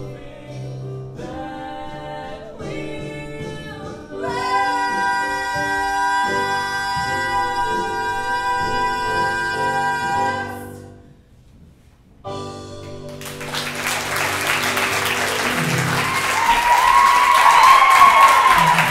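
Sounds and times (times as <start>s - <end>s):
duet singing with accompaniment: 0.0s - 11.0s
closing chord: 12.3s - 16.6s
audience applause: 13.1s - 18.9s
audience cheering: 13.2s - 18.9s.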